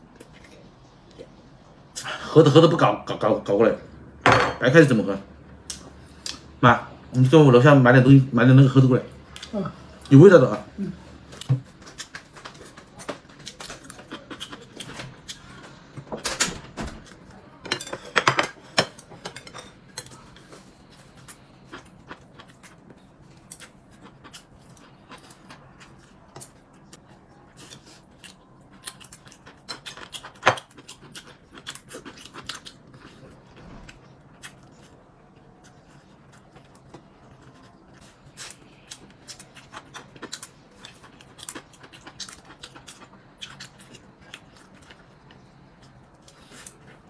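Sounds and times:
chewing: 19.8s - 47.0s.

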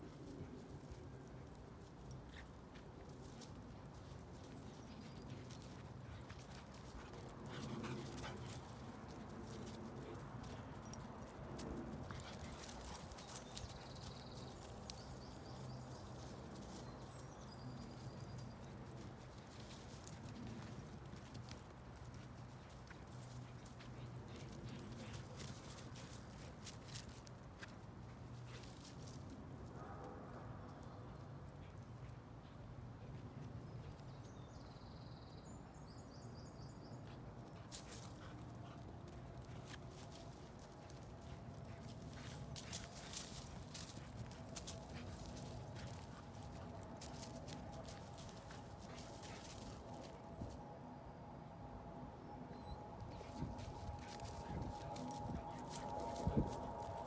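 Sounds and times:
low wind rumble: 38.6s - 57.0s.

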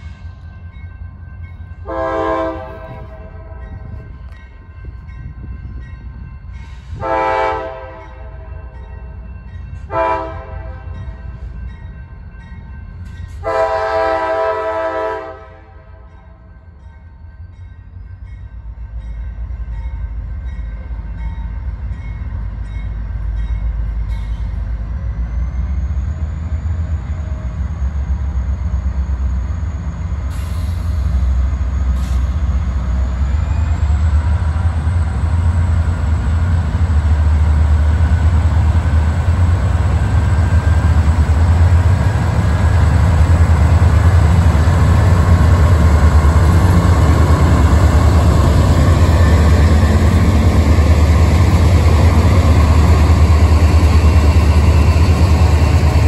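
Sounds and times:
low rumble of locomotives: 0.0s - 56.0s
locomotive horn blasts: 1.8s - 3.7s, 7.0s - 8.4s, 9.9s - 11.0s, 13.4s - 16.0s.

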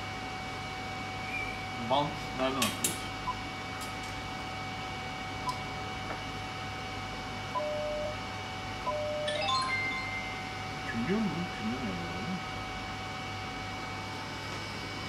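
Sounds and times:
faint electronic tone and hiss: 8.9s - 12.4s.

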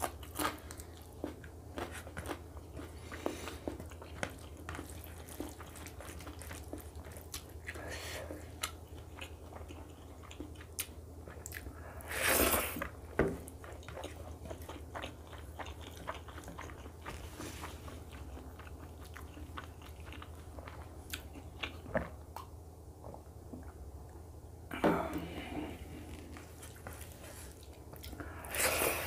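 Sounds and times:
wet chewing: 0.0s - 22.5s
steady low hum: 0.0s - 29.0s.

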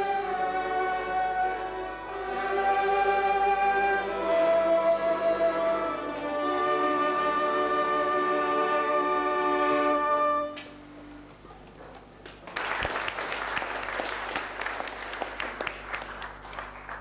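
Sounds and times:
flute and violin ensemble chord: 0.0s - 11.1s
applause: 12.2s - 17.0s.

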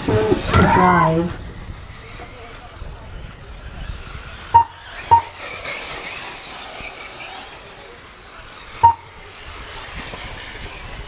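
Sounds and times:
electric motors whining: 0.0s - 11.0s
short electronic beep: 4.6s - 5.3s, 8.8s - 9.1s.

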